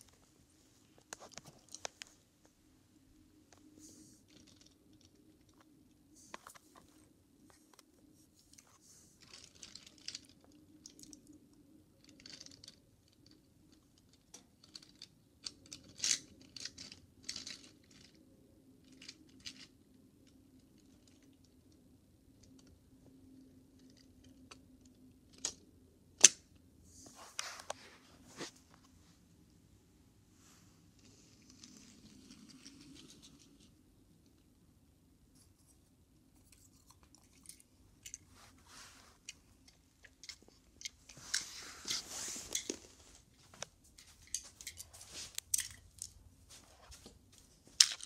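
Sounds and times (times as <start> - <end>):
faint steady hum: 0.0 - 48.0
small clicks and knocks: 8.5 - 18.2.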